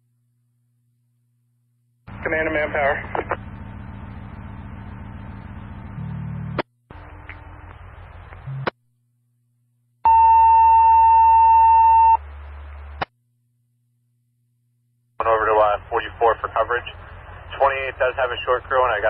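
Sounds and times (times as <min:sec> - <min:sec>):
radio hiss with squelch click: 0:03.1 - 0:03.4
loud steady beep tone: 0:10.0 - 0:12.2.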